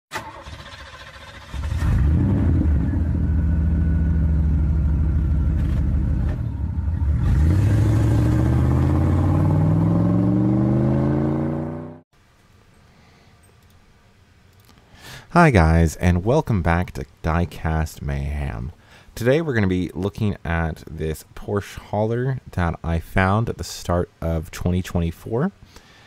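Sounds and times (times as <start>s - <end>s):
car engine revving: 1.5s - 12.0s.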